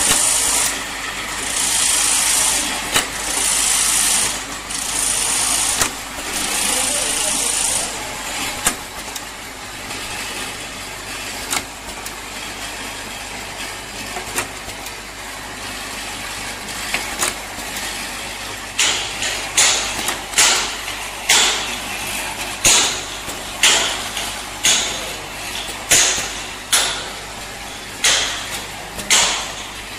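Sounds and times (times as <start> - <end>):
machine humming: 0.0 - 14.1.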